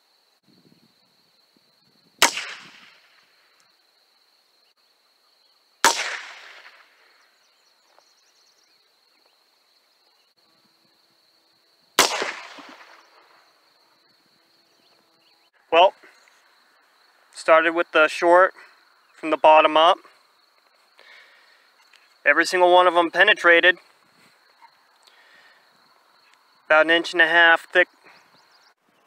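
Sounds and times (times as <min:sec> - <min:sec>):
gunshots: 0:02.2 - 0:03.1, 0:05.8 - 0:07.0, 0:12.0 - 0:13.2.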